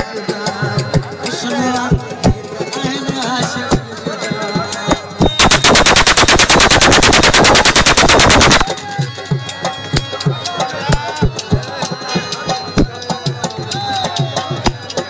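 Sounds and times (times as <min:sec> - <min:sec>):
drumming: 0:05.2 - 0:08.7
automatic gunfire: 0:05.4 - 0:08.7.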